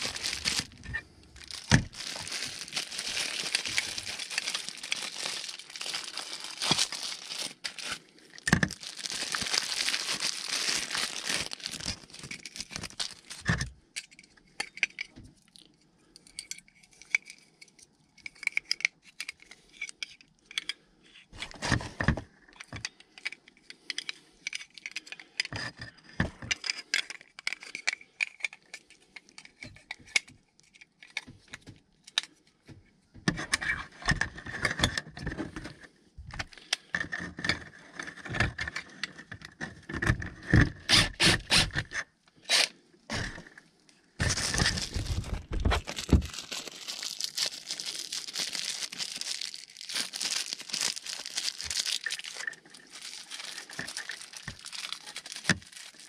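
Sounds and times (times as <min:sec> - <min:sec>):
foil crinkling and rustling: 0:00.0 - 0:13.5, 0:44.2 - 0:56.0.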